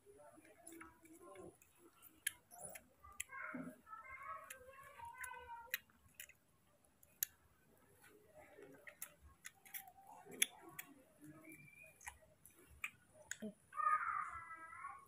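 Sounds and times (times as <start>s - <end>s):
monkey chewing fruit: 7.0s - 13.6s
wet clicks and lip smacks: 8.7s - 11.0s, 11.7s - 13.4s.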